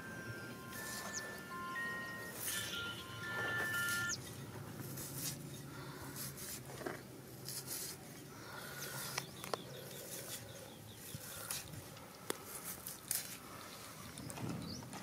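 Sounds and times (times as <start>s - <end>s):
faint high bird chirps: 0.0s - 4.4s.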